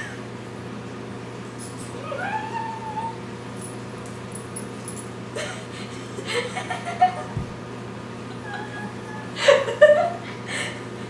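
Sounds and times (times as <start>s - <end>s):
steady low hum: 0.0s - 11.0s
woman whining vocal sound: 2.0s - 3.2s, 8.4s - 9.6s
women giggling: 5.4s - 7.4s, 8.3s - 10.4s.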